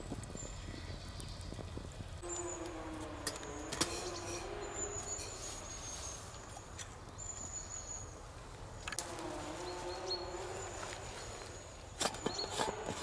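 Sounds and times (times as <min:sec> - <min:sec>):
wood fire crackling: 0:00.0 - 0:07.5
low wavering hum: 0:02.2 - 0:08.1, 0:09.0 - 0:13.0
faint high whistle: 0:02.3 - 0:06.3.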